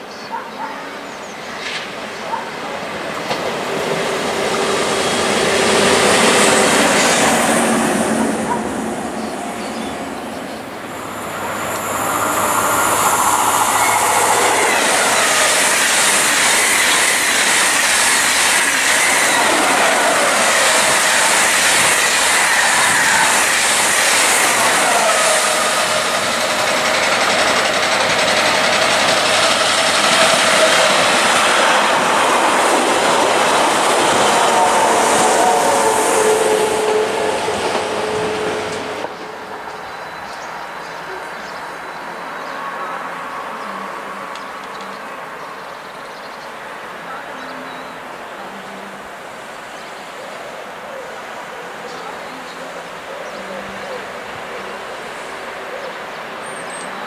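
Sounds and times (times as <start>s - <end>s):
train wheels clattering on rails: 3.0s - 9.4s, 11.0s - 39.4s
high whine: 8.9s - 39.1s.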